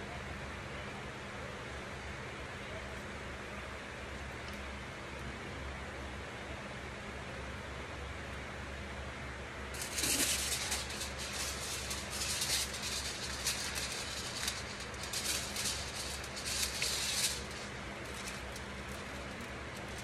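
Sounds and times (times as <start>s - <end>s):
steady low hum: 9.5s - 20.0s
foil crinkling and crackling: 9.7s - 20.0s.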